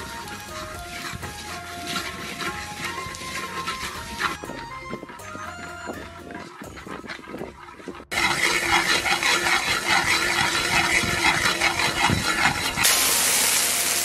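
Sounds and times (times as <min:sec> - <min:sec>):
sugar sizzling in a wok: 0:00.0 - 0:03.8, 0:11.7 - 0:14.0.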